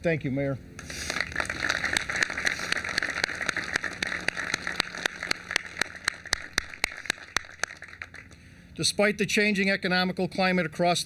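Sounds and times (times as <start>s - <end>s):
crowd applauding: 0.8s - 8.4s.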